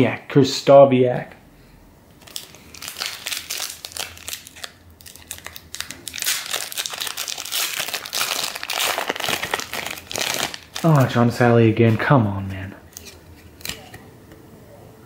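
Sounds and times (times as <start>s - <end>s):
foil wrapper crinkling: 2.2s - 12.1s.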